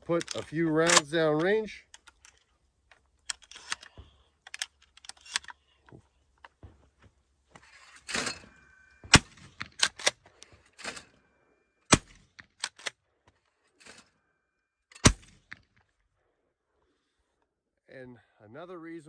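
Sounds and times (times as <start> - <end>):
shotgun pump slide racking: 3.3 - 5.6
shotgun firing: 9.0 - 10.0, 11.9 - 12.2, 15.0 - 15.6.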